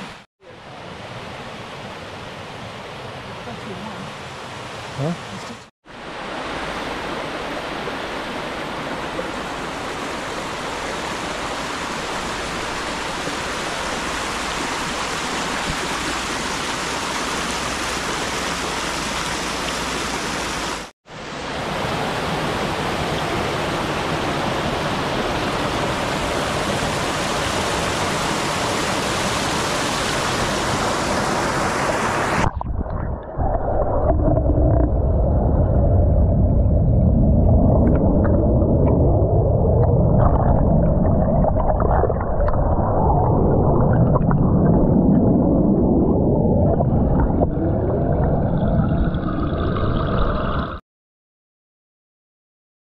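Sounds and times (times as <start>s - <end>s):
small waterfalls rushing: 0.0s - 32.5s
muffled underwater churning and bubbles: 30.4s - 50.8s.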